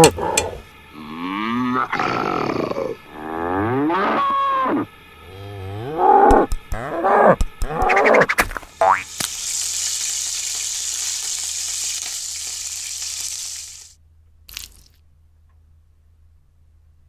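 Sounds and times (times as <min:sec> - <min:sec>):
cow mooing: 0:00.0 - 0:08.0.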